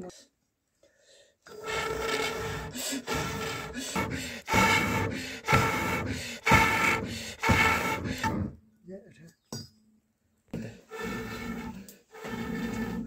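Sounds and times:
rubbing strokes: 0:01.5 - 0:08.5, 0:10.6 - 0:13.0.

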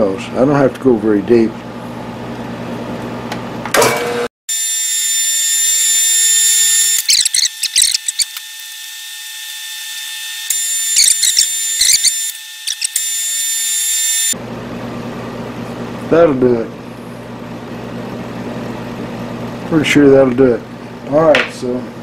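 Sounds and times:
milling machine spindle whine: 0:04.6 - 0:14.4
cutter chattering and squealing: 0:05.4 - 0:14.4.

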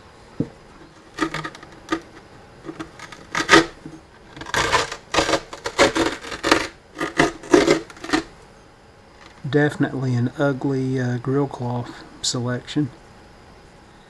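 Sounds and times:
cloth rustling and scraping: 0:00.8 - 0:08.3.

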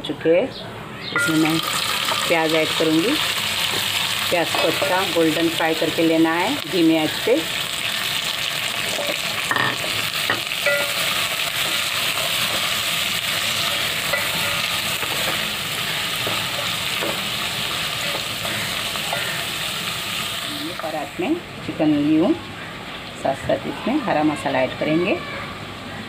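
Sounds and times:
onions sizzling in oil: 0:01.2 - 0:25.1
spatula scraping metal pot: 0:08.8 - 0:20.9.

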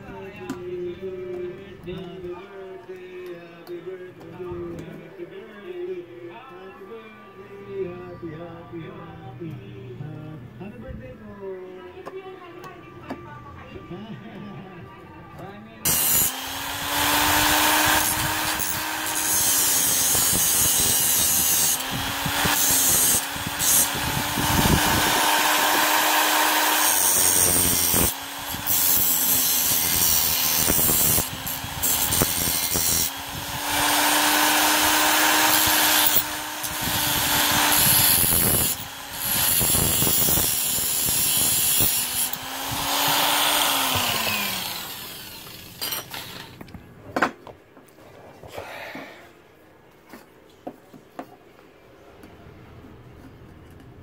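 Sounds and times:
angle grinder cutting metal: 0:15.8 - 0:46.6
motor winding down: 0:15.9 - 0:46.6.

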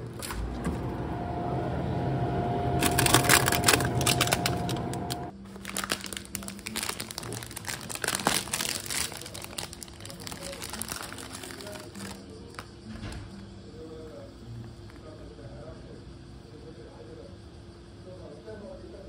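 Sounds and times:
freezer door opening thump: 0:00.0 - 0:01.2
freezer fan humming: 0:00.0 - 0:14.2
plastic wrapper crinkling: 0:02.8 - 0:12.7.

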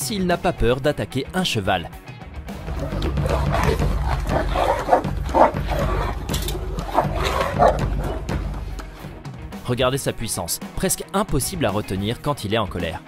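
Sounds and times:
dog growling and snarling: 0:02.6 - 0:08.5
dog barking: 0:03.1 - 0:08.3.

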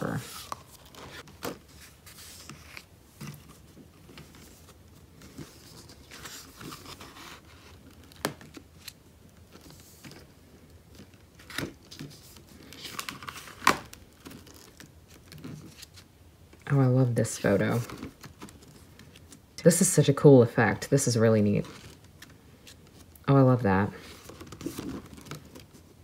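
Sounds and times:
card pages rustling and sliding: 0:00.0 - 0:16.1, 0:17.2 - 0:19.5, 0:21.4 - 0:23.1, 0:23.9 - 0:26.0
pages tapping as they flip: 0:24.2 - 0:25.8.

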